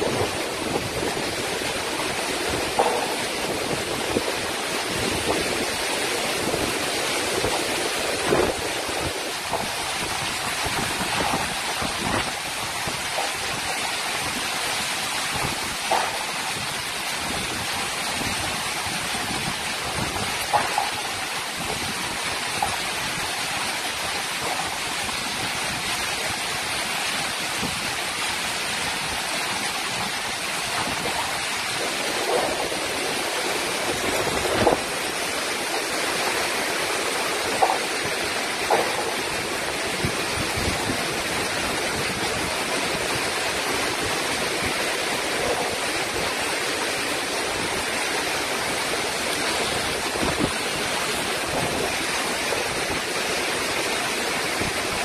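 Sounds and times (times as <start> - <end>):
heavy rain and wind: 0.0 - 55.0
sharp knocks: 2.7 - 3.6.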